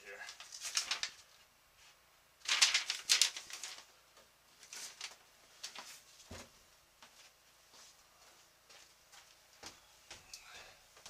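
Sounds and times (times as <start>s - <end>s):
paper rustling: 0.2s - 6.5s.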